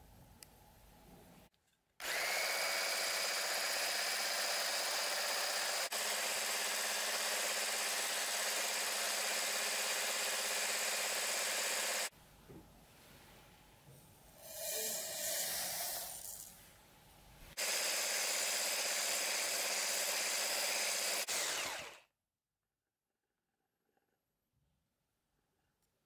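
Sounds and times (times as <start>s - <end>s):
electric hand blender whisking: 2.0s - 12.1s, 17.6s - 22.0s.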